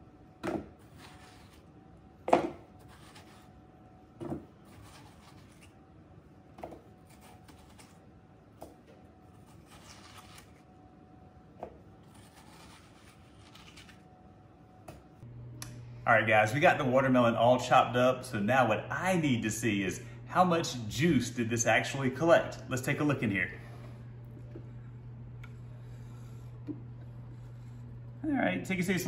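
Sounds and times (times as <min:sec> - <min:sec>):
knife cutting watermelon: 0:07.0 - 0:08.0, 0:09.3 - 0:10.7, 0:12.0 - 0:14.0.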